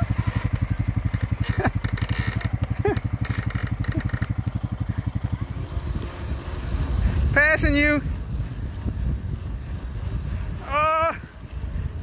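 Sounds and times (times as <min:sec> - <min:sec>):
atv engine idling: 0:00.0 - 0:12.0.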